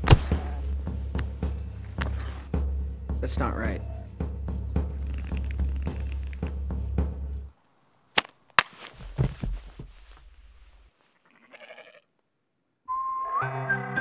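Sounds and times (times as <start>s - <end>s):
body tumbling and thudding: 0.0s - 2.5s, 8.6s - 10.9s
music with a steady beat: 0.0s - 7.5s
sheep bleat: 11.2s - 12.1s.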